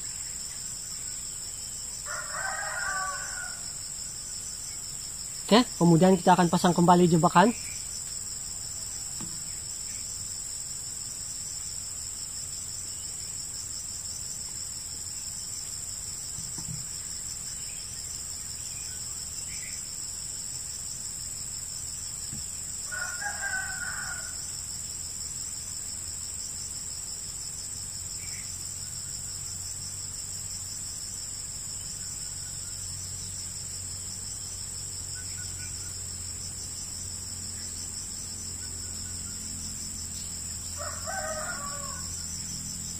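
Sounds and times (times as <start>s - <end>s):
insects droning: 0.0s - 42.9s
rooster crowing: 2.0s - 3.8s, 22.8s - 24.6s, 40.6s - 42.5s.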